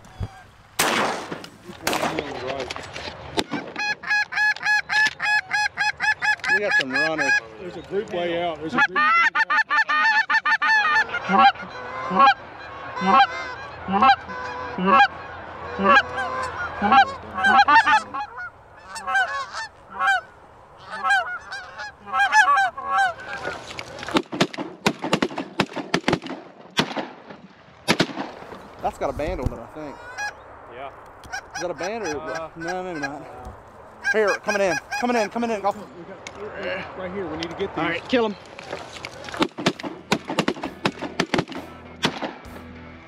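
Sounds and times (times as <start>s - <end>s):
sharp cracks: 0.8s - 5.3s, 23.3s - 28.8s, 38.6s - 42.7s
goose honking and clucking: 3.4s - 7.5s, 8.6s - 23.7s, 29.8s - 30.4s, 31.2s - 35.8s.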